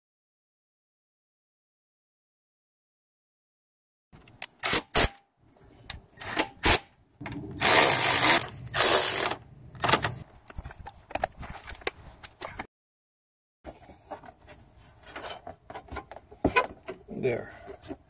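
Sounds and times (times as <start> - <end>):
parts clicking and rattling: 7.2 - 12.6.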